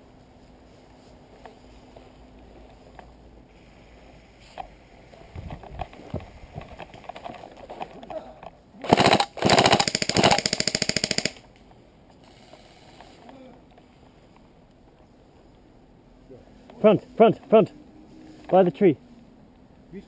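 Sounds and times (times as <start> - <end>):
airsoft gun firing full-auto: 8.8 - 11.4.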